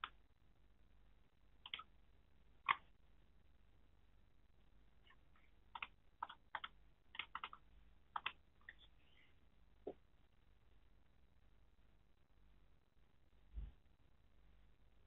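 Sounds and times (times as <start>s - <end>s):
computer mouse clicks: 1.6s - 1.9s, 2.6s - 2.9s, 5.1s - 8.9s.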